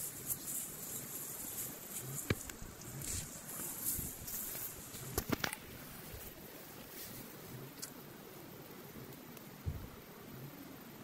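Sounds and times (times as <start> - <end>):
leafy plants rustling: 0.0 - 10.0
soft footsteps on soil: 0.1 - 7.5.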